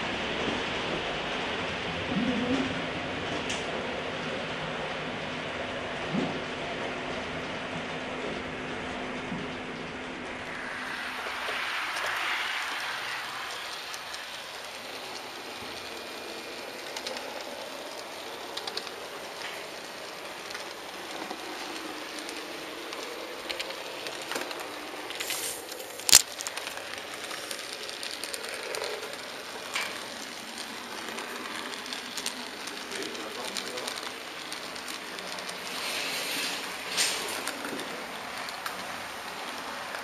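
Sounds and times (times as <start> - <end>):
model train rolling on track: 0.0 - 40.0
small clicks: 11.9 - 40.0.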